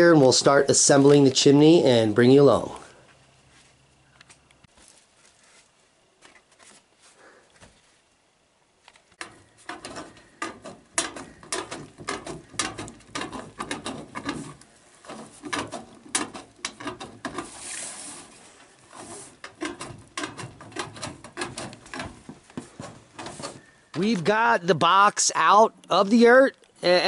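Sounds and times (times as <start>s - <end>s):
metal scraping rasp: 9.2s - 23.9s.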